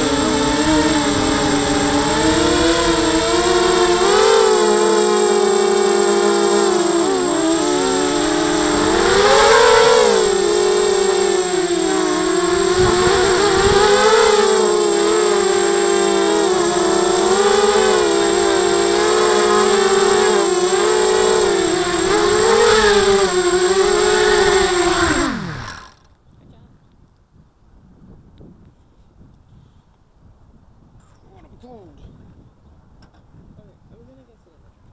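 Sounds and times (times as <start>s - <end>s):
quadcopter motors buzzing: 0.0s - 26.1s.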